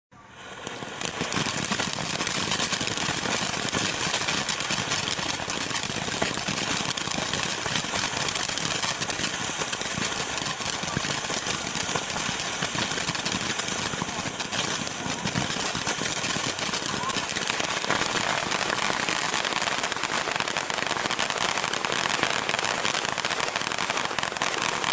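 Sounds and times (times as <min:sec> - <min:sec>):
firework fountain hissing and crackling: 0:00.2 - 0:24.9.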